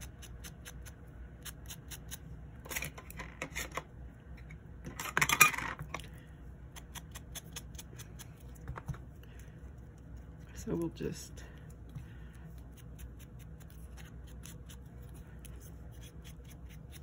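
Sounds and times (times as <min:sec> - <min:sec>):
foam dauber rubbing on card: 0:12.4 - 0:17.0.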